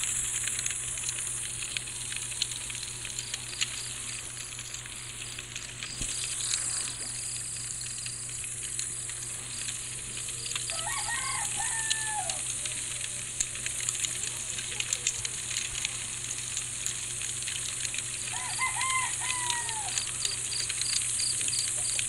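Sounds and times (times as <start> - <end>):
campfire crackling: 0.0 - 22.0
crickets chirping: 2.1 - 13.3, 18.2 - 22.0
animal call: 18.3 - 20.6.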